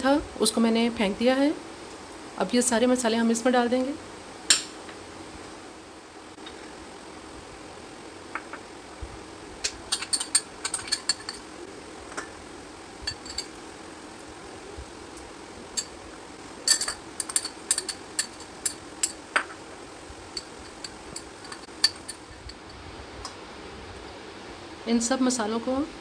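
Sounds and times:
glass bowls clinking on steel bowl: 0:16.6 - 0:19.5.

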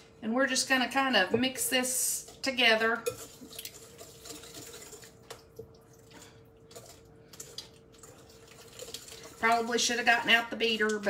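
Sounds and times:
whisk swishing in bowl: 0:01.8 - 0:05.3, 0:06.2 - 0:11.0.

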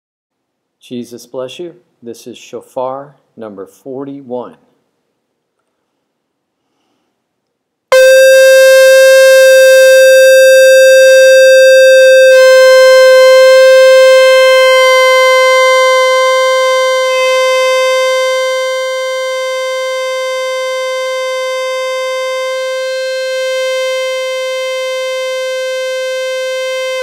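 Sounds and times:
shofar blast: 0:07.9 - 0:27.0.

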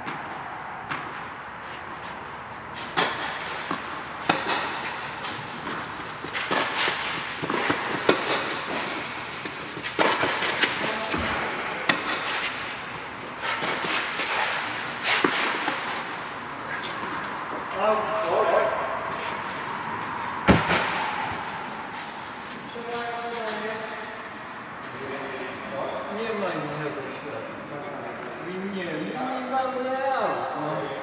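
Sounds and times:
tennis balls struck by rackets: 0:00.0 - 0:18.8, 0:19.4 - 0:22.7
tennis balls bouncing on clay: 0:02.8 - 0:16.1.

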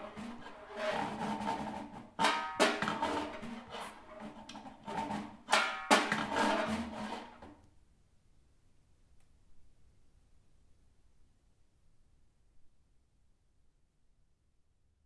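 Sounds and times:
sharp snare drum strikes: 0:00.0 - 0:07.5
stick scraping across drum: 0:00.0 - 0:07.6.

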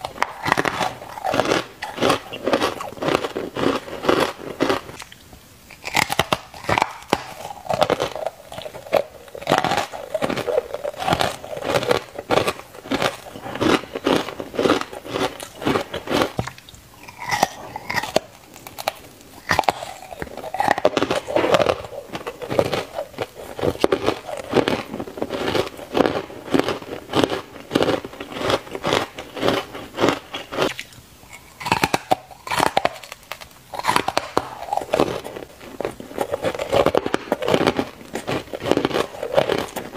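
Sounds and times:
ice crunching being chewed: 0:00.0 - 0:39.9.

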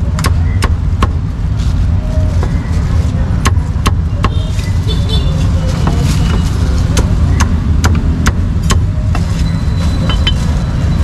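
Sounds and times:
road traffic rumble: 0:00.0 - 0:11.0
cleaver chopping on wooden block: 0:00.2 - 0:01.2, 0:06.9 - 0:09.2.

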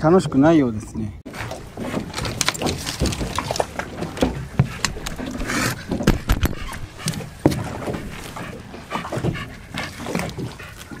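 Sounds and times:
knocks and clatter on boat deck: 0:01.3 - 0:10.7
dog panting: 0:04.6 - 0:11.0.

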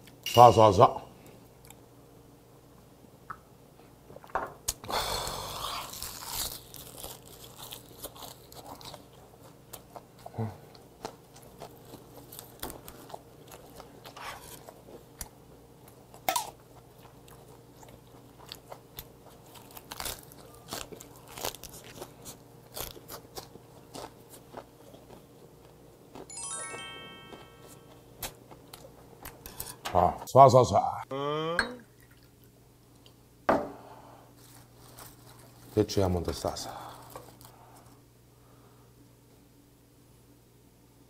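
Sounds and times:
chewing and crunching cabbage: 0:05.2 - 0:26.3, 0:27.8 - 0:29.8, 0:34.3 - 0:38.0.

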